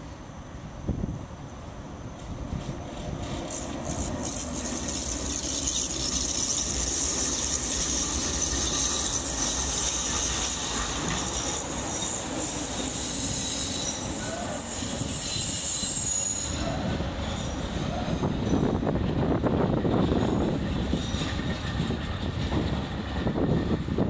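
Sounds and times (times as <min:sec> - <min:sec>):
tram rumbling on rails: 0:00.0 - 0:24.0
wheels squealing on curve: 0:03.5 - 0:18.6.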